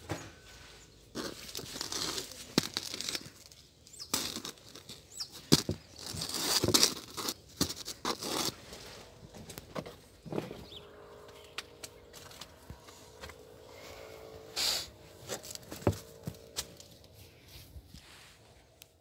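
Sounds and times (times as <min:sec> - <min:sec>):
loaves rustling in straw basket: 0:00.6 - 0:09.6.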